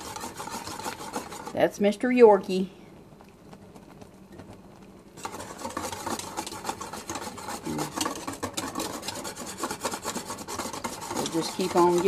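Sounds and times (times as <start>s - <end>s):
whisk scraping metal saucepan: 0.0s - 2.0s, 5.2s - 12.0s
thick mixture boiling: 0.0s - 12.0s.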